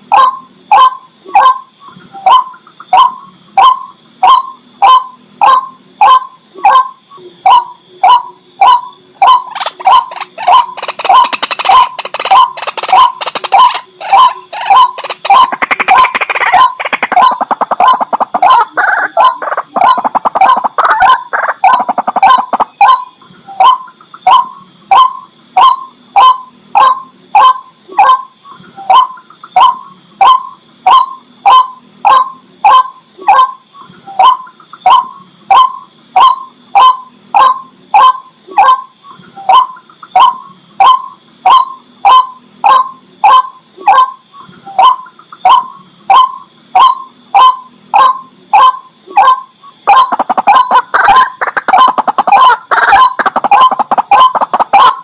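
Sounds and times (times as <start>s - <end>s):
waterhen calling: 7.5s - 28.2s, 44.8s - 55.0s.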